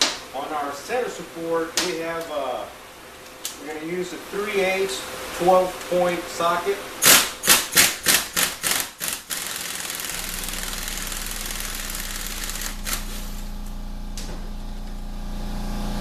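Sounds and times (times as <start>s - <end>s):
air ratchet running: 7.0s - 13.2s
low motor hum: 9.6s - 16.0s.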